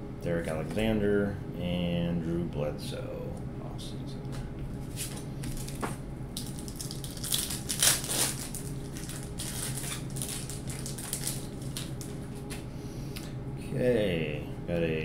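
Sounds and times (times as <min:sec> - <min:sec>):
plastic wrapper crinkling and tearing: 0:06.4 - 0:12.6.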